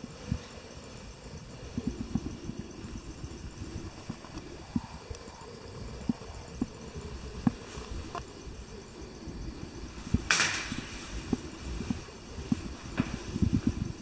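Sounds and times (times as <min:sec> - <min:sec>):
brief rustle: 0:10.2 - 0:13.8.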